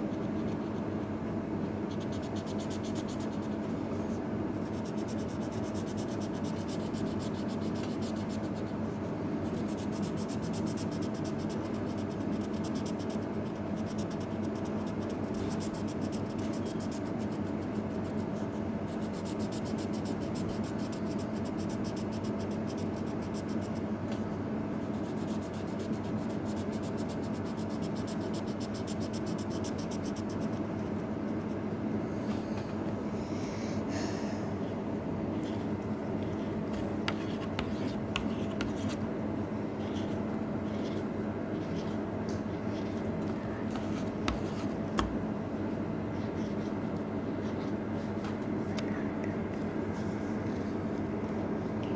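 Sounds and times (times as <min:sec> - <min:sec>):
steady low hum: 0:00.0 - 0:51.9
marker scratching on paper: 0:01.9 - 0:08.8, 0:09.4 - 0:23.9, 0:24.8 - 0:31.6, 0:35.4 - 0:39.0, 0:39.8 - 0:44.7, 0:46.1 - 0:48.2.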